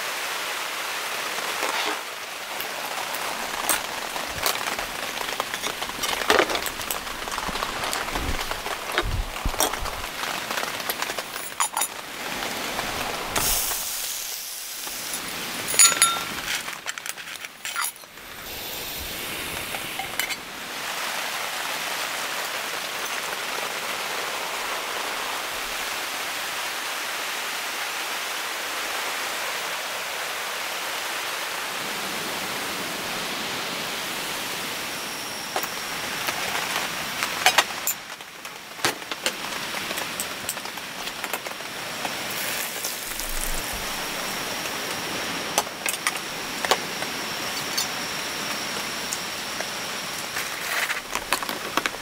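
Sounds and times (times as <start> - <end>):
rain falling: 0.0 - 52.0
sharp clicks and clinks: 15.1 - 16.6, 17.6 - 18.1.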